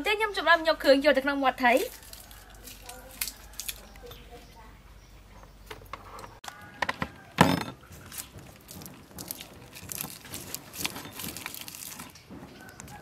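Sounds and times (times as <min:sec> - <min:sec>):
rustling and squishing of stalks in fish: 0:01.8 - 0:04.1, 0:07.8 - 0:13.0.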